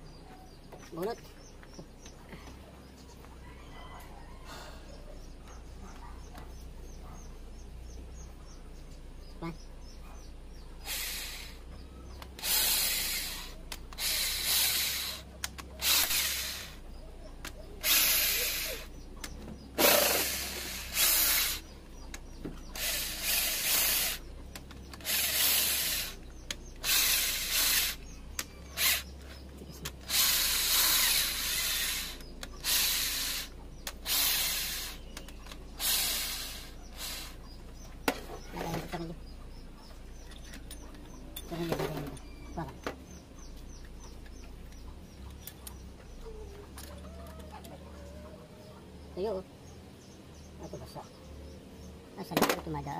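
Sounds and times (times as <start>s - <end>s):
power drill bursts: 10.8s - 11.6s, 12.4s - 15.2s, 15.8s - 16.8s, 17.8s - 18.9s, 19.8s - 21.7s, 22.8s - 24.2s, 25.0s - 26.2s, 26.8s - 28.1s, 28.7s - 29.1s, 30.0s - 35.0s, 35.8s - 37.4s.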